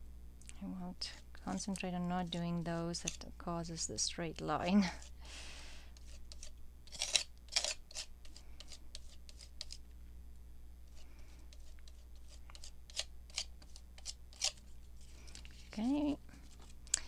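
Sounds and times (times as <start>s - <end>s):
craft tools scraping paper: 6.0s - 9.8s, 11.5s - 16.8s.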